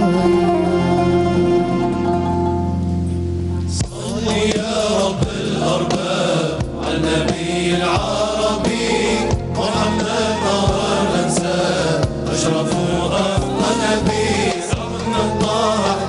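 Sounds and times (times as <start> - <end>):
band instruments: 0.0 - 16.0
drum strokes: 3.8 - 16.0
male choir chanting: 3.8 - 16.0.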